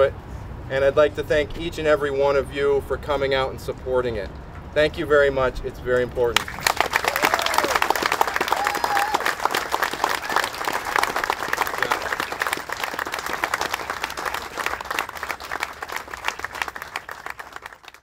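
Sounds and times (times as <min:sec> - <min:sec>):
crowd applauding: 0:06.4 - 0:18.0.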